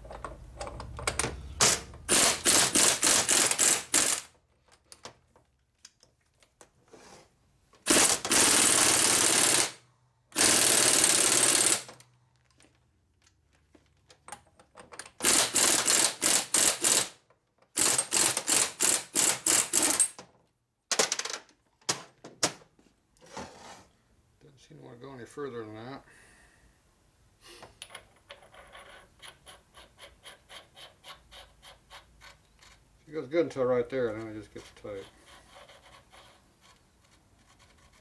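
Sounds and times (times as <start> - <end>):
power tool spinning a nut: 1.6 - 4.4, 7.9 - 9.8, 10.4 - 12.0, 15.2 - 17.1, 17.8 - 20.1.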